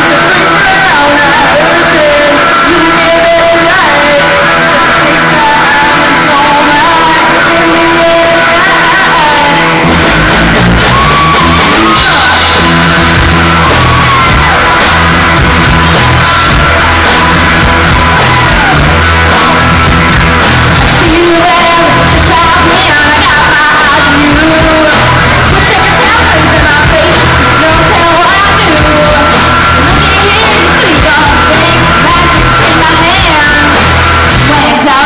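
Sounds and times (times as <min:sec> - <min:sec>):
women singing in rock style: 0:00.0 - 0:09.9, 0:20.0 - 0:35.0
live rock band: 0:00.0 - 0:35.0.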